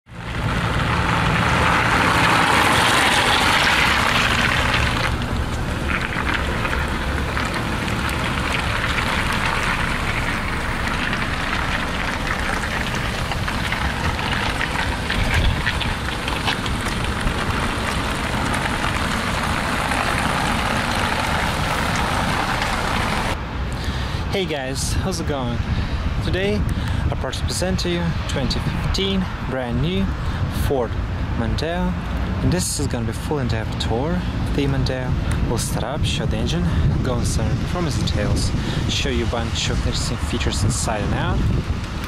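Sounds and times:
car engine idling: 0:00.1 - 0:24.2
steady rushing noise: 0:00.1 - 0:42.0.

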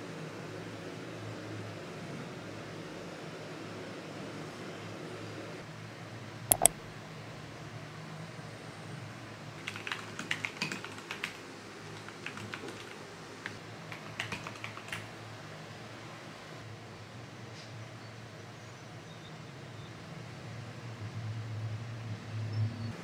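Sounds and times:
mechanical keyboard typing: 0:06.5 - 0:06.8, 0:09.6 - 0:15.1.

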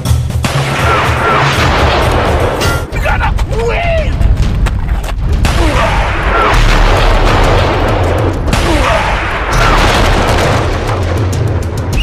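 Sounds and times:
soundtrack music: 0:00.0 - 0:12.0
heavy low rumble: 0:01.9 - 0:12.0
booming effects: 0:05.2 - 0:11.9.

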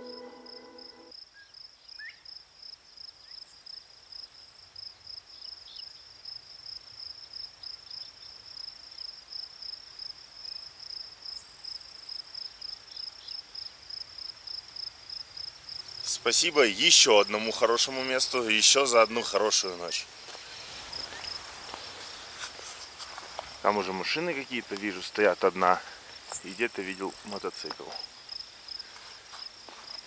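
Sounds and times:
cricket chirping: 0:00.0 - 0:30.0.

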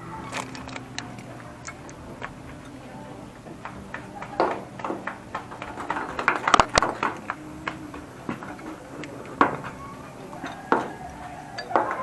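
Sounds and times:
hex key clicking on bolts: 0:00.3 - 0:02.8.

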